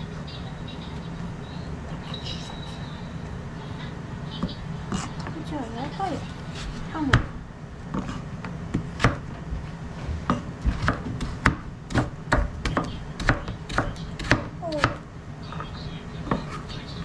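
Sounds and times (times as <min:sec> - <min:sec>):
knife chopping on cutting board: 0:07.9 - 0:09.2, 0:10.2 - 0:15.0.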